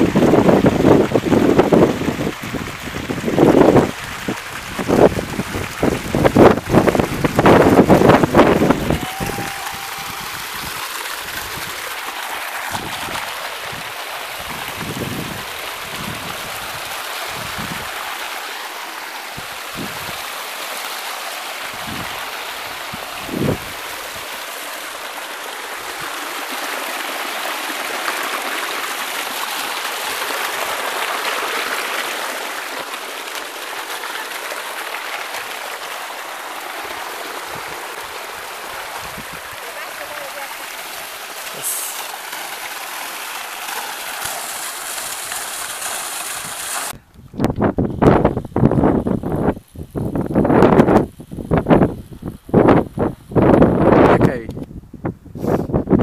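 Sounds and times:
water rushing down a channel: 0.0 - 47.0, 47.6 - 54.5.

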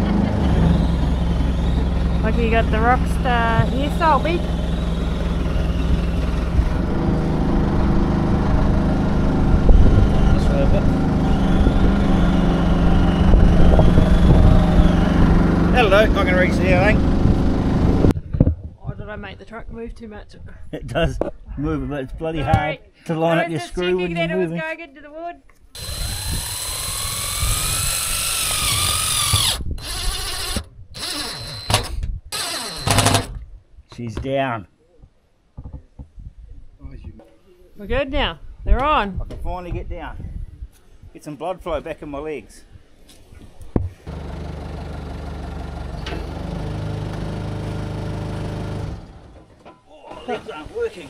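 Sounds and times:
engine running: 0.0 - 18.2, 25.8 - 31.8, 44.0 - 49.6
cordless drill driving screw: 25.8 - 33.4.

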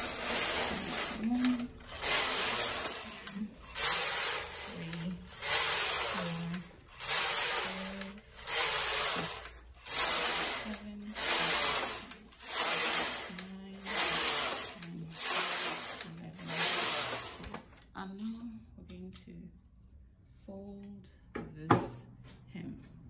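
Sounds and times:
knitting machine carriage clattering: 0.0 - 17.7.

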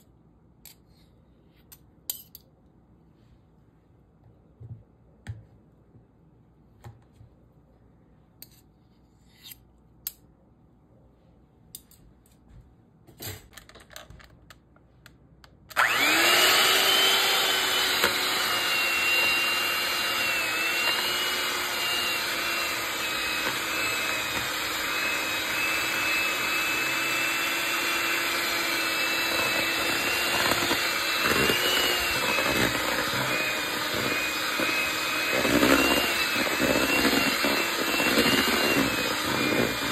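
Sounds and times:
electric hand mixer whining: 15.8 - 39.9.

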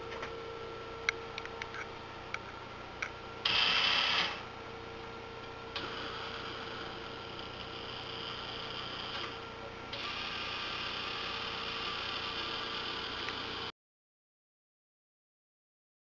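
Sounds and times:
small motors humming: 5.8 - 13.7.

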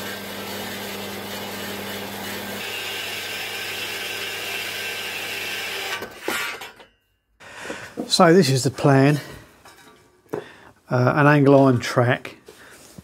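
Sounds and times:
bandsaw motor hum: 0.0 - 6.3.

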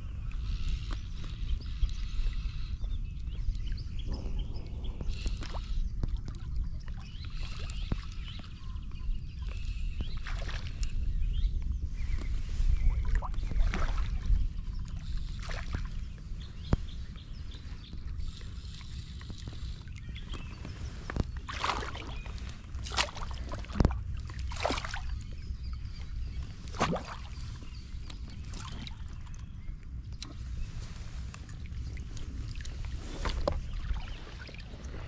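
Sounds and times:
low rumble of wind: 0.0 - 35.0
water splashing: 21.4 - 25.2, 26.6 - 27.6.

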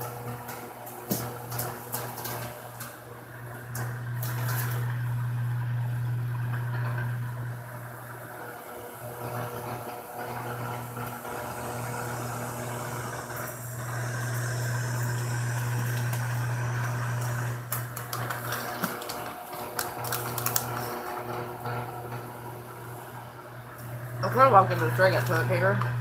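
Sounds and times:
electric fan humming: 0.0 - 26.0
plastic bag crinkling: 17.7 - 21.3.

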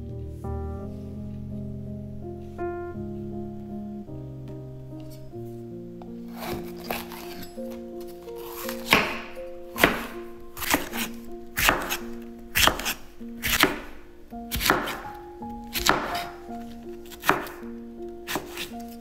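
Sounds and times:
knife chopping on cutting board: 8.4 - 12.0, 12.6 - 15.1, 15.7 - 16.4, 17.2 - 17.6, 18.3 - 18.8.

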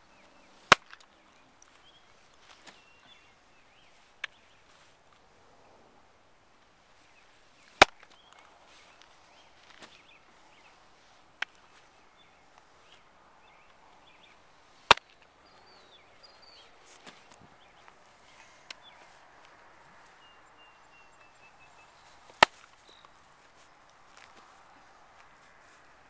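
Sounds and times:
birds chirping faintly: 0.0 - 26.0
baseball smacking into glove: 22.3 - 23.1.

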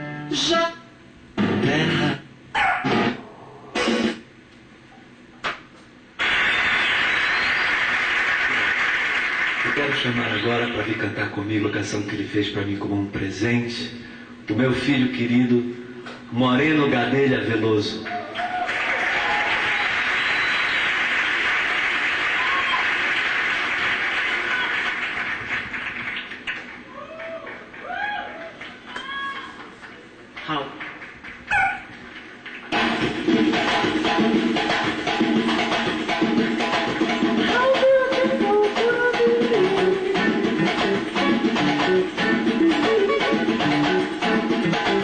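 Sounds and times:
concert audience applause: 6.2 - 11.0, 18.1 - 33.3.

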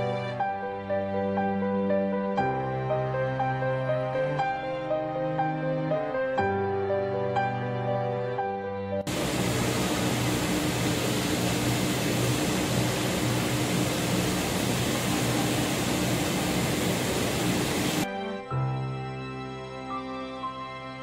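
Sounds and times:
rushing ventilation hum: 9.1 - 18.1.

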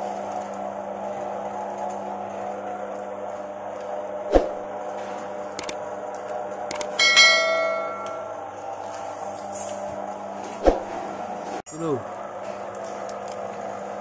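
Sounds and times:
electric motor humming: 0.0 - 7.0.

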